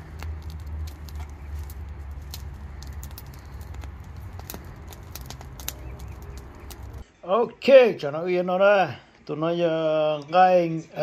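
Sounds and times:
low fire rumble: 0.0s - 7.0s
wood fire crackling and popping: 0.0s - 7.0s.

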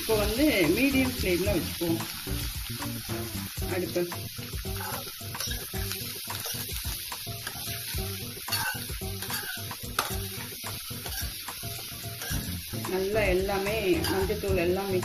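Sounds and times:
vegetables sizzling in oil: 0.0s - 15.0s
metal spatula scraping a pan: 4.6s - 14.5s.

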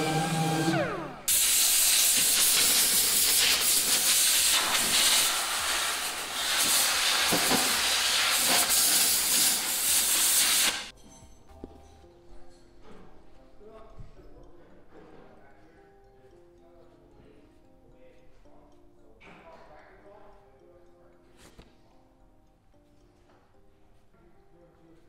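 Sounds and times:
power tool motor whining down: 0.0s - 3.3s
compressed air hissing: 1.3s - 10.9s.

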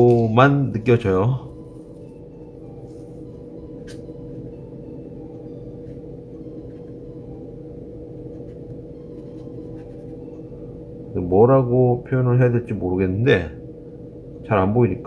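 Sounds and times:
room hum with held tone: 0.0s - 15.0s.

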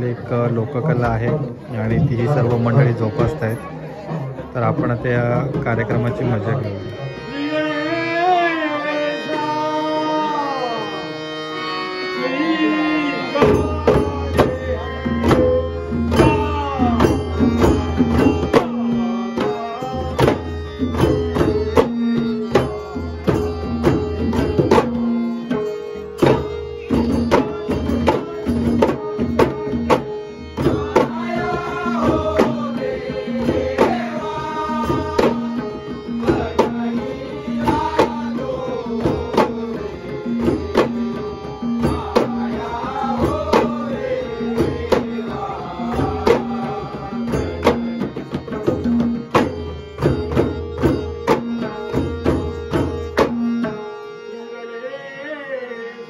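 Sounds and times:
man singing: 4.4s - 11.4s, 12.0s - 20.9s, 26.2s - 48.1s, 53.6s - 56.0s
clay-pot hand drums: 13.4s - 53.8s.

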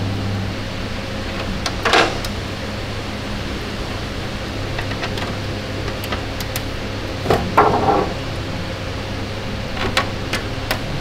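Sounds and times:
workshop fan hum: 0.0s - 11.0s
metal panel knock and rattle: 7.3s - 8.2s.

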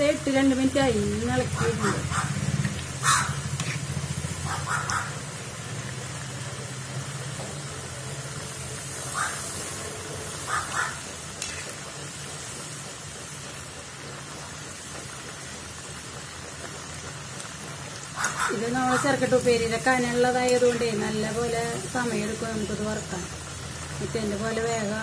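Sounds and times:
food deep-frying in oil: 0.0s - 25.0s.

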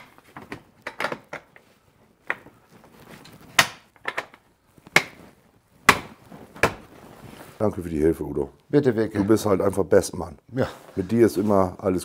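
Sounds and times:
plastic tool case clicks and knocks: 0.0s - 1.6s.

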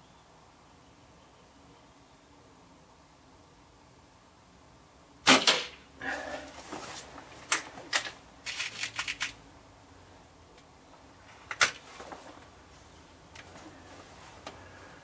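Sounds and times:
air rifle firing: 5.2s - 5.8s
rifle handling clicks and knocks: 7.0s - 9.4s, 11.3s - 12.5s.

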